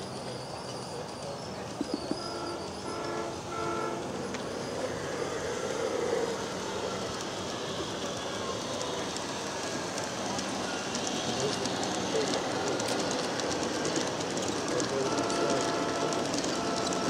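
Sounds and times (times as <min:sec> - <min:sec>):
model train running on track: 0:00.0 - 0:17.0
model train electronic horn: 0:02.2 - 0:05.2, 0:14.7 - 0:17.0.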